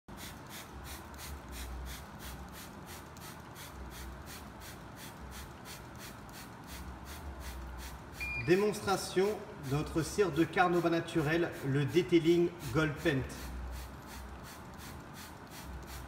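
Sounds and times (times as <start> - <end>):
water sprayer hissing in pulses: 10.6 - 16.0.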